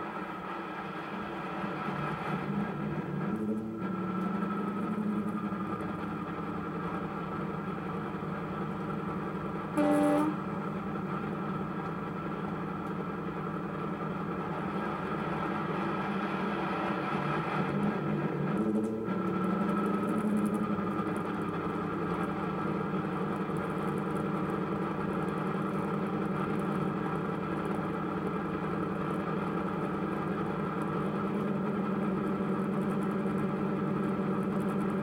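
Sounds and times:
locomotive horn blast: 9.8 - 10.5.

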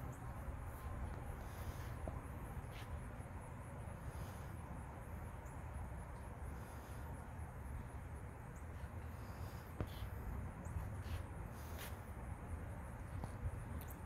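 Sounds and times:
insects chirping: 0.0 - 14.0.

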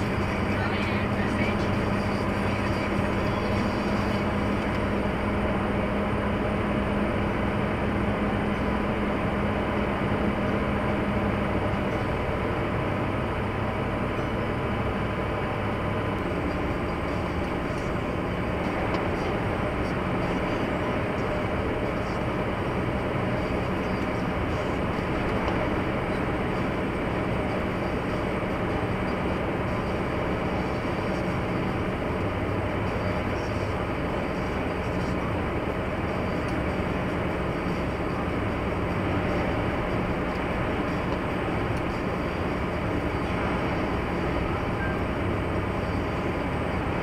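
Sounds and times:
car engine and road noise: 0.0 - 47.0.

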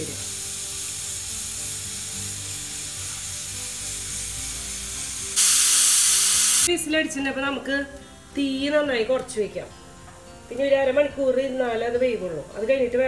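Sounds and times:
pressure cooker whistling: 0.0 - 6.7.

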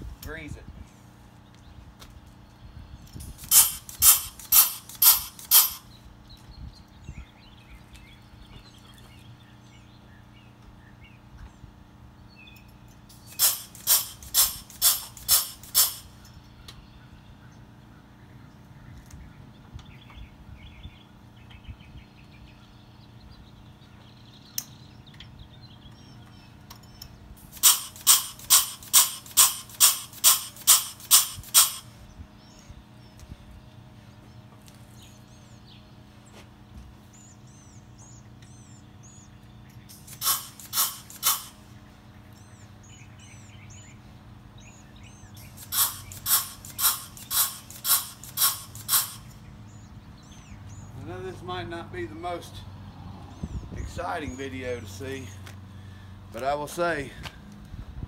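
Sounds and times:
bird chirps: 1.4 - 56.1
grease gun pumping strokes: 3.4 - 5.8, 13.2 - 16.1, 27.5 - 31.8, 39.9 - 41.5, 45.4 - 49.3.

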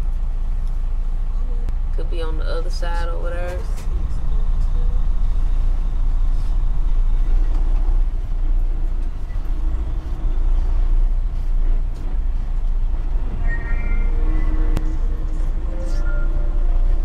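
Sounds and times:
truck diesel engine rumble: 0.0 - 17.0.

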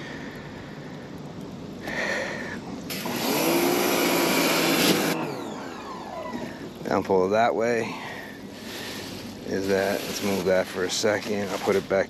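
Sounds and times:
pressure washer spray hissing: 2.9 - 5.2
pressure washer motor: 2.9 - 6.9.

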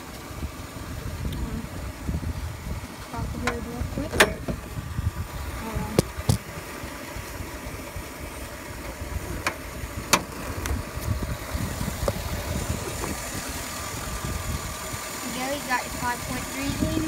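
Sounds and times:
truck engine idling: 0.0 - 17.0
clicks and knocks on hood latch: 9.4 - 10.3.

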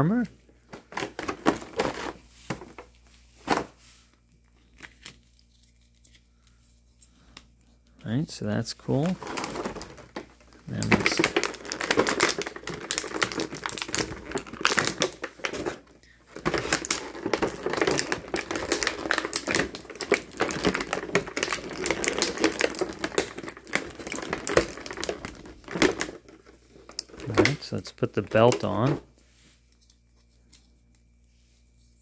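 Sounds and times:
plastic blister pack crackling: 0.7 - 2.8, 8.9 - 29.0.

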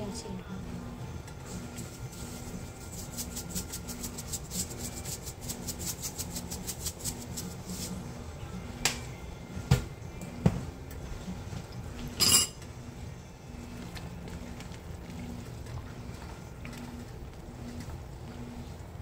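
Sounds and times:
salt shaker shaking: 1.8 - 8.0.

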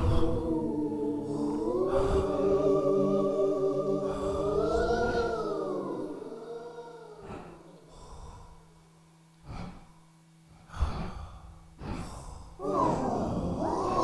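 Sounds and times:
heavy breaths: 0.0 - 3.0, 3.8 - 8.8, 9.4 - 14.0
faint steady hum: 0.0 - 14.0.

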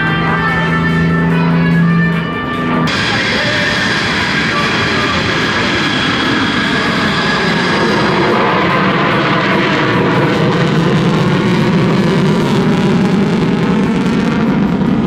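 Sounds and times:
high engine whine: 0.0 - 15.0
jet engine roar: 0.0 - 15.0.

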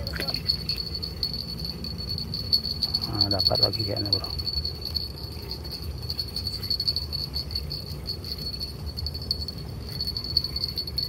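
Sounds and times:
low rumble: 0.0 - 3.1
insects chirring: 0.0 - 11.0.

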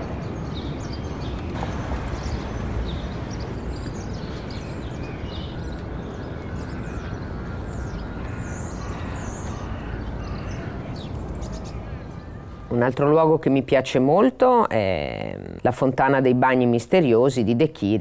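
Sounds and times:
small birds chirping: 0.0 - 14.2
city traffic rumble: 0.0 - 17.5.

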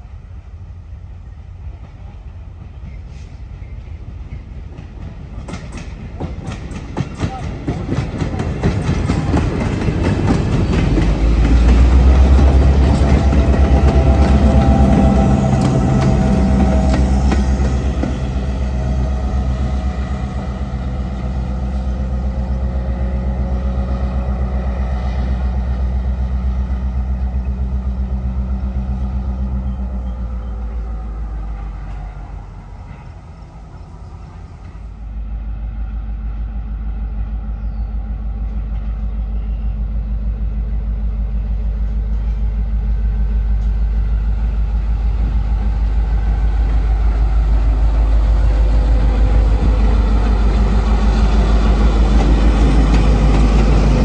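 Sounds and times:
diesel locomotive engine running: 0.0 - 54.0.

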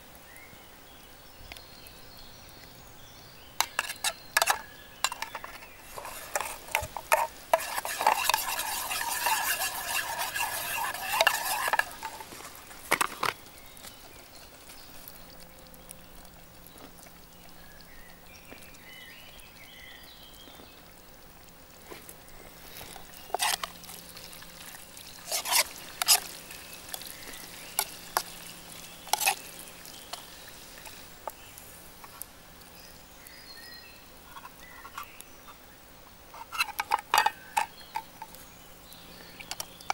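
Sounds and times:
utensil clinking on metal pan: 3.6 - 12.2
metal spoon scraping pan: 3.6 - 12.4, 23.2 - 24.0, 25.2 - 31.0, 36.4 - 38.1.

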